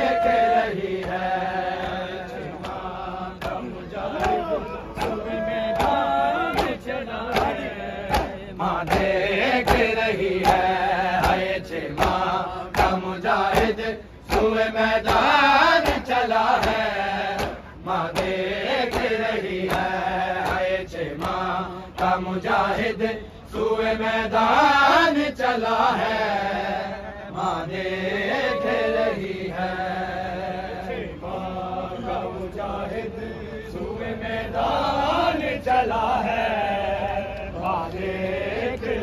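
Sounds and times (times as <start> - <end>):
men chanting a lament: 0.0 - 39.0
rhythmic chest-beating strikes: 0.6 - 25.0.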